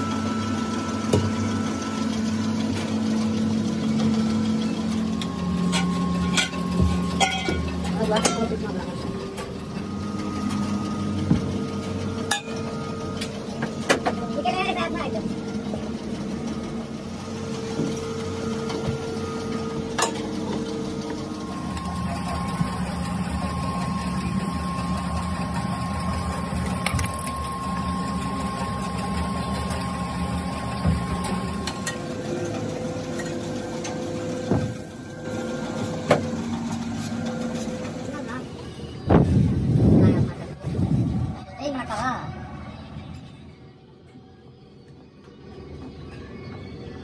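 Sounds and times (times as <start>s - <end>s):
factory machinery humming: 0.0s - 47.0s.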